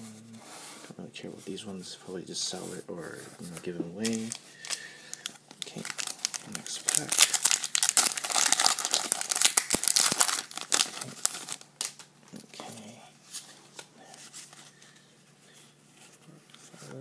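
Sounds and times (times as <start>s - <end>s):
foil wrapper tearing and crinkling: 4.0s - 12.0s.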